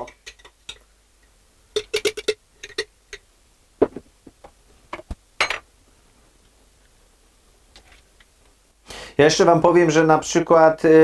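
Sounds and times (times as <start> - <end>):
spoon clinking against a pot: 1.8 - 3.2.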